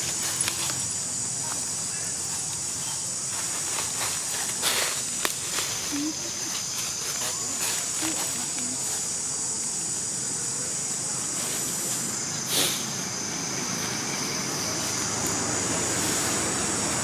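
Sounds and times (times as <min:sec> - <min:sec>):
high hiss: 0:00.0 - 0:17.0.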